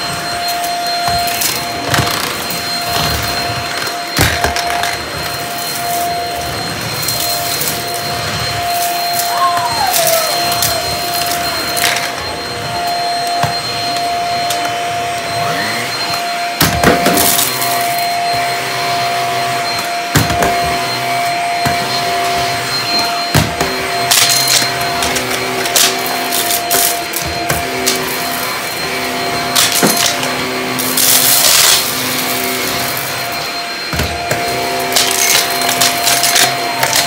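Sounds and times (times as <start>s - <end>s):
stick vacuum whining: 0.0s - 37.0s.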